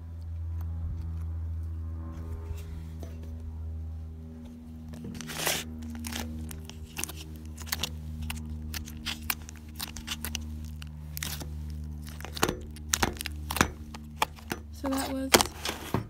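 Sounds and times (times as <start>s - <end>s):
slime squishing: 5.0s - 15.9s.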